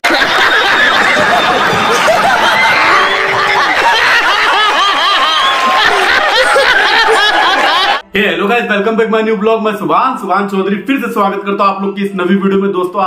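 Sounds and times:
group of people laughing: 0.0s - 8.0s.

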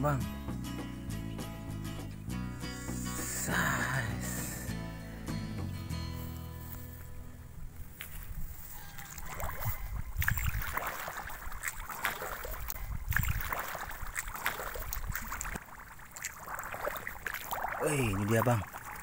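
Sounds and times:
footsteps sloshing through water: 7.8s - 19.0s.

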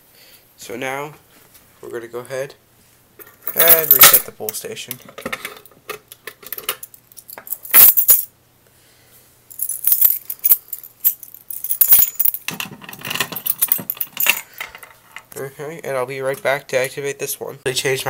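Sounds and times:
keys clattering: 3.2s - 4.3s, 5.3s - 8.3s, 9.5s - 15.3s
keys jangling: 6.6s - 8.3s, 9.5s - 14.6s.

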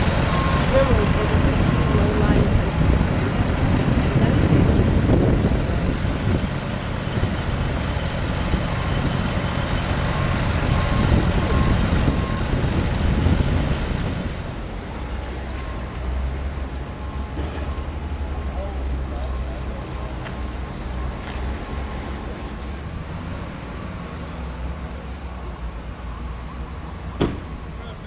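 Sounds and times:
truck engine running: 0.0s - 26.2s
diesel engine rumbling under load: 0.0s - 28.0s
faint reversing alarm beeps: 0.2s - 2.8s, 8.6s - 12.6s, 15.2s - 21.3s, 26.0s - 28.0s.

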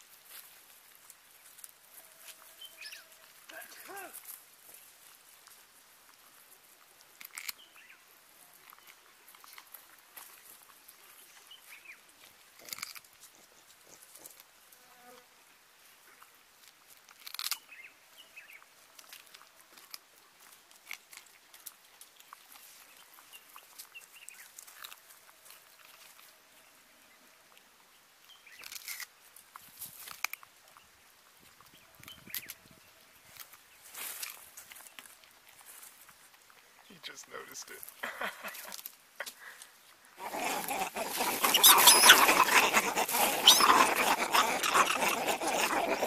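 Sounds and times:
rustling and crunching in dry leaves: 33.2s - 36.3s, 40.1s - 46.0s.

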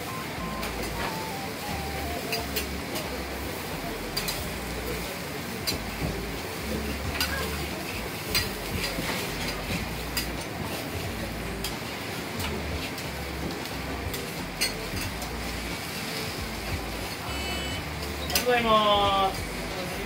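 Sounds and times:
kitchen noise: 0.0s - 20.0s.

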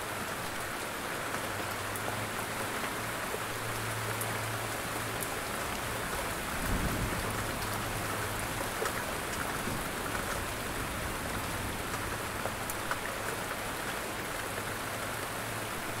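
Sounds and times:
steady rain falling: 0.0s - 16.0s.

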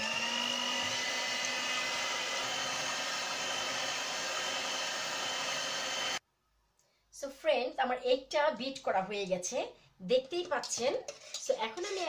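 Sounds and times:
electric hand mixer whisking: 0.0s - 6.2s.

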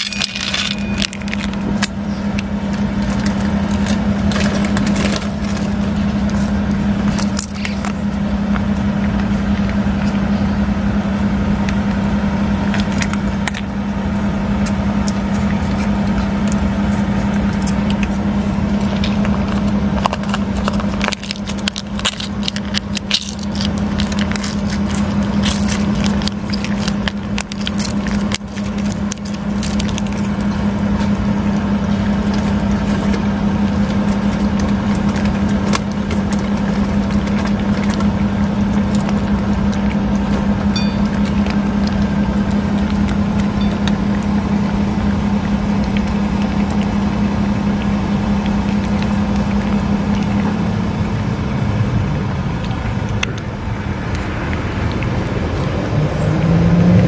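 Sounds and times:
cat eating from steel bowl: 0.0s - 57.0s
low machine hum: 0.0s - 57.0s
plastic pouch being squeezed: 18.8s - 40.4s.

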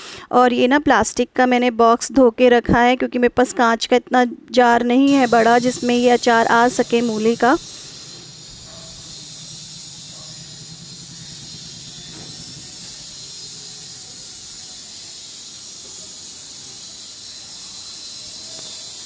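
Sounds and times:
high background hiss: 5.0s - 19.0s.

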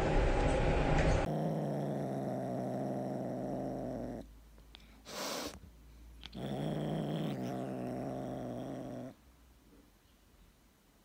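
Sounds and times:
kitten purring: 1.2s - 4.4s, 6.2s - 9.2s
breathy puff: 4.8s - 5.6s.

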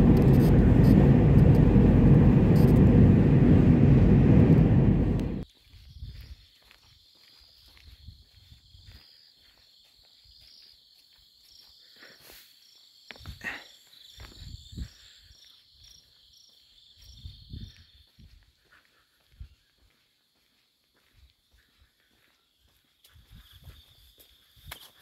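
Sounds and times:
low rustling thumps: 0.0s - 5.4s
insects trilling: 5.4s - 25.0s.

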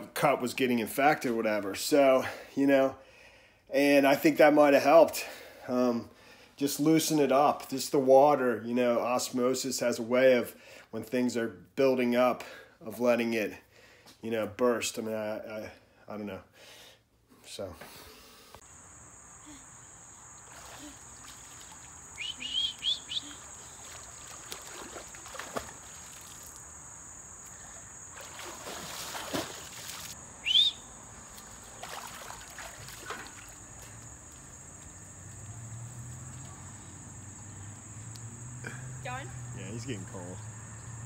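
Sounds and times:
crickets chirring: 18.6s - 41.0s.

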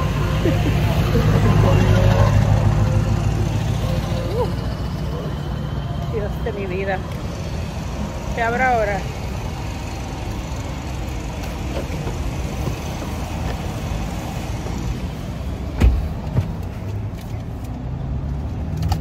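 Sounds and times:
low traffic rumble: 0.0s - 19.0s
car door thump: 15.8s - 16.6s.

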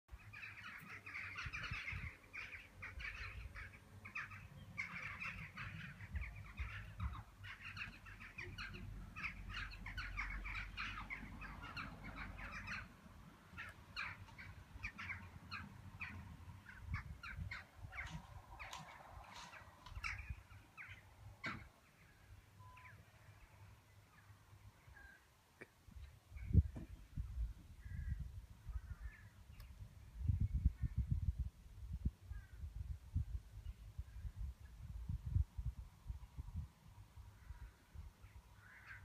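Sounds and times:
birds chattering: 0.2s - 27.1s.

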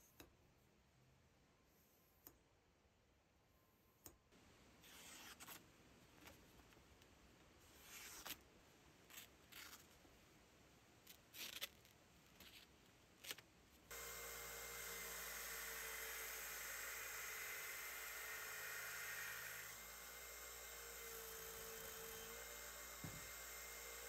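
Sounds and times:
knife slicing paper: 7.6s - 8.4s, 11.1s - 13.4s.

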